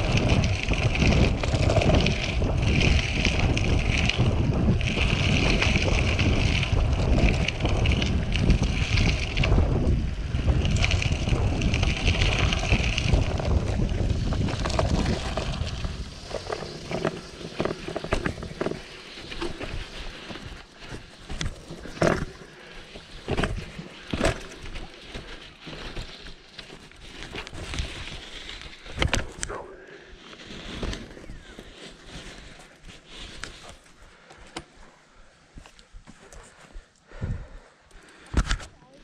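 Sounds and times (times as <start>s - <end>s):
wind buffeting microphone: 0.0s - 22.4s
tyres crackling on sand: 0.0s - 37.1s
tyre rumble on dirt trail: 0.0s - 37.7s.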